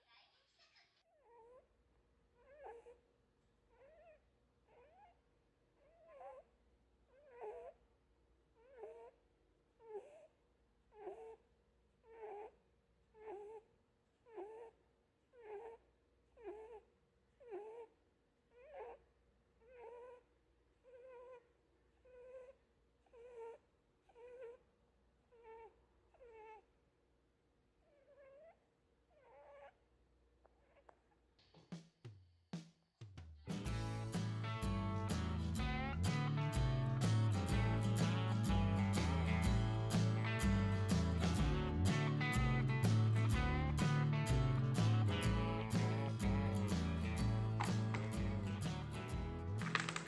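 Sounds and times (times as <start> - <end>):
rabbit snoring: 8.6 - 9.2, 10.9 - 11.4, 12.0 - 12.6, 14.3 - 14.8, 15.4 - 15.8, 16.4 - 17.9.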